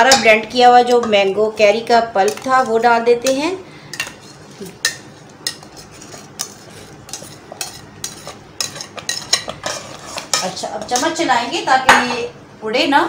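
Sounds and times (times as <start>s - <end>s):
metal spoon scraping glass bowl: 5.4s - 11.1s.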